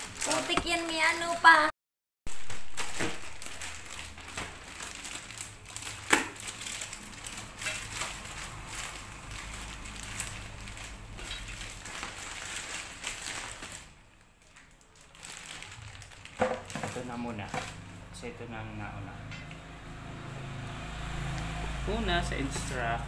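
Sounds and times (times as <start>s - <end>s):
plastic bags crinkling: 0.0s - 1.6s, 2.3s - 17.8s.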